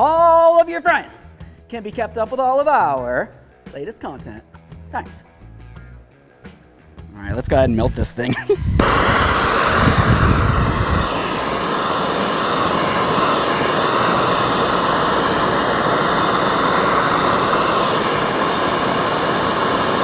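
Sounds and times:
hand torch flame hissing: 8.4 - 20.0.

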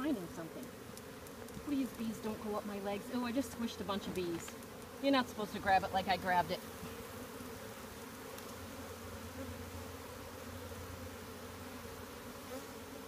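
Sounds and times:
bees droning: 0.0 - 13.0.

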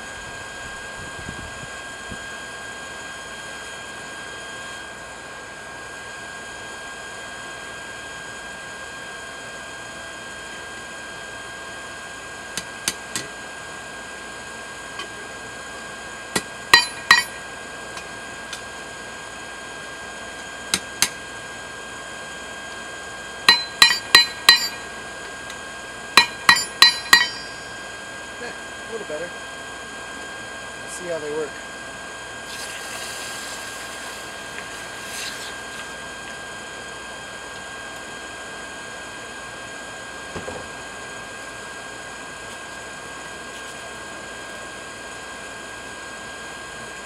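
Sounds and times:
forge blower humming: 0.0 - 47.0
hammer striking metal on anvil: 16.4 - 17.4, 23.5 - 24.9, 26.2 - 27.8.

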